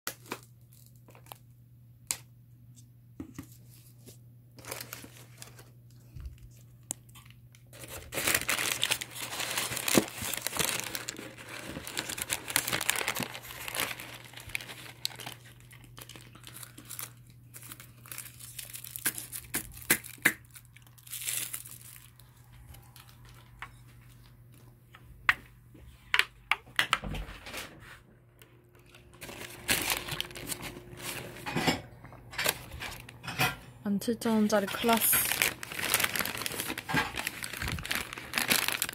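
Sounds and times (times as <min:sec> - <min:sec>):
paper bags crinkling and rustling: 0:00.1 - 0:01.4, 0:03.6 - 0:24.7, 0:28.7 - 0:33.6, 0:34.2 - 0:38.9.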